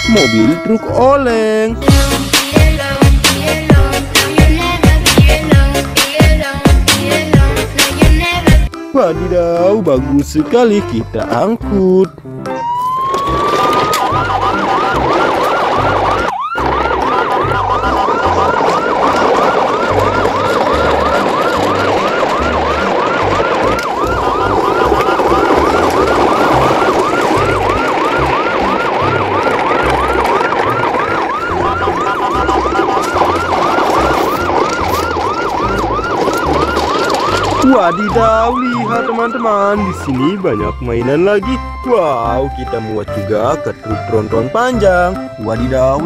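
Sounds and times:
background music with bass line: 0.0s - 13.4s
electronic yelp siren: 12.5s - 44.7s.

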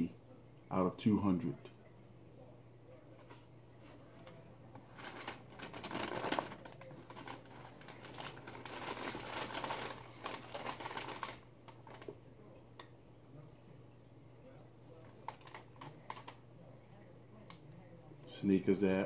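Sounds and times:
tissue paper rustling: 4.8s - 12.1s.

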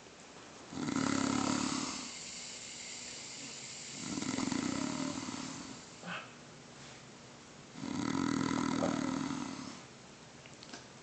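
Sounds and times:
man snoring: 0.7s - 6.2s, 7.8s - 9.9s.

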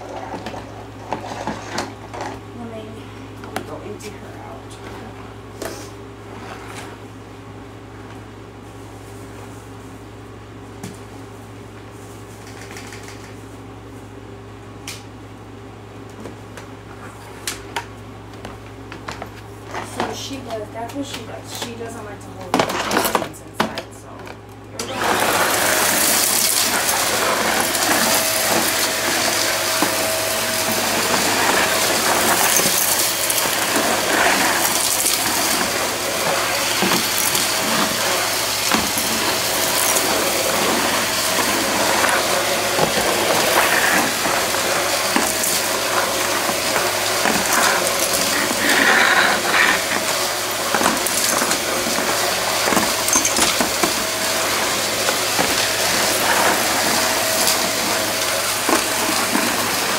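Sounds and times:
stick vacuum running: 0.0s - 7.1s, 17.4s - 59.9s
debris rattling up vacuum: 24.8s - 59.9s.

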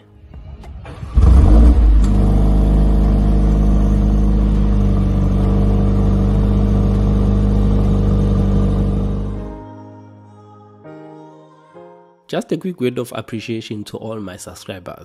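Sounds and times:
car engine revving and idling: 0.6s - 9.5s.

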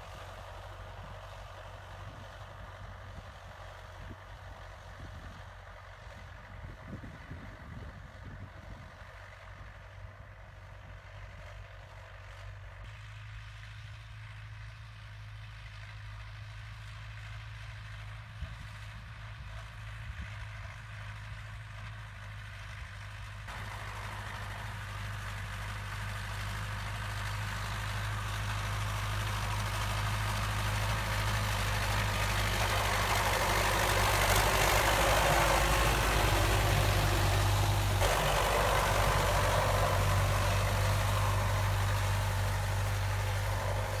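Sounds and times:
tractor diesel engine running: 0.0s - 44.0s.

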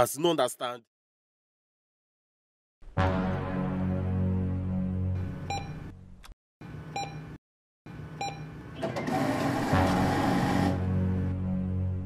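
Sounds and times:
keypad beeps: 5.5s - 5.8s, 7.0s - 7.3s, 8.2s - 9.1s.

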